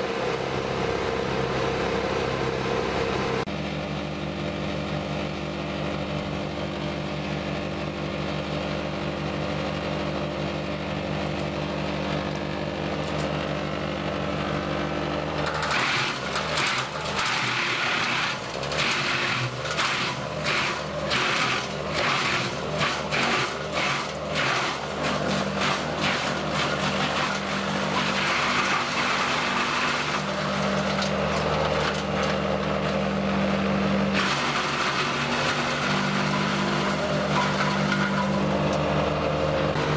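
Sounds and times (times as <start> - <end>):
tractor engine: 0.0 - 39.9
wood chipper crunching tree: 0.0 - 39.9.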